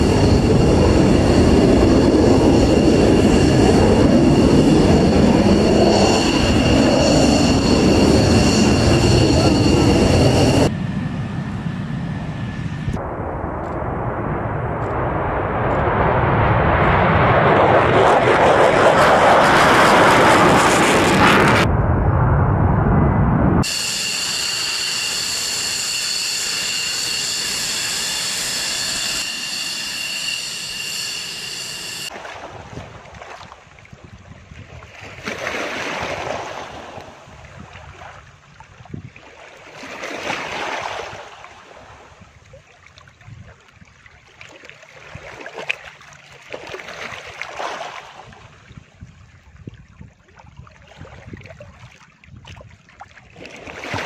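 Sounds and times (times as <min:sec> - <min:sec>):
jet engine whining: 0:00.0 - 0:32.2
sea rushing and bow wash: 0:31.0 - 0:54.0.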